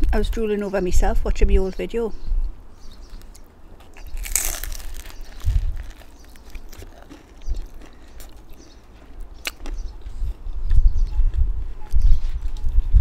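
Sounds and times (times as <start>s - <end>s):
chewing with sharp clicks: 3.1s - 11.4s
crunchy bite: 3.2s - 10.0s.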